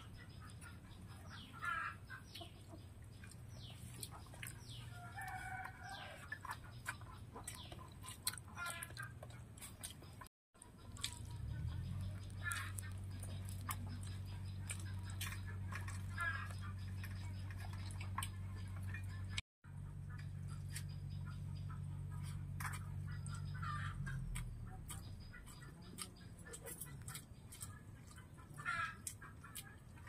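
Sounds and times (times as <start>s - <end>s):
hens clucking: 0.0s - 30.0s
chewing: 2.2s - 19.4s, 20.0s - 30.0s
steady low hum: 9.3s - 30.0s.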